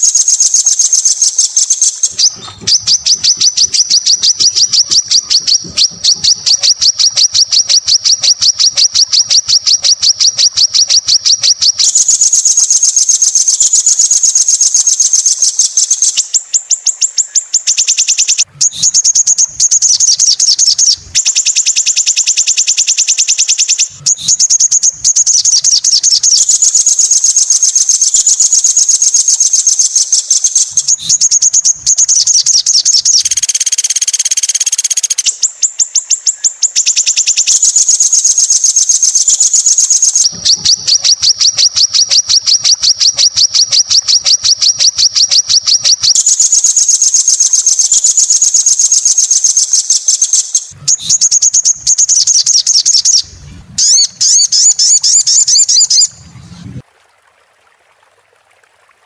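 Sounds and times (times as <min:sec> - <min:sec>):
buzzy bird phrase: 0:00.0 - 0:22.8, 0:46.2 - 0:56.8
songbird trilling: 0:00.0 - 0:56.8.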